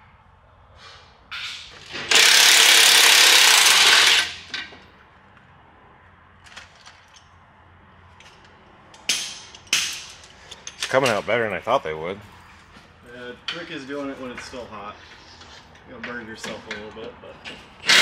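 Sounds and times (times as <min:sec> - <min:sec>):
power tool running: 0:01.8 - 0:04.6.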